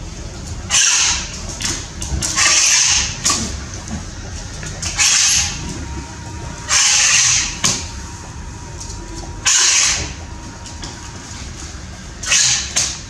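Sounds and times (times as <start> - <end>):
low background rumble: 3.2 - 13.0.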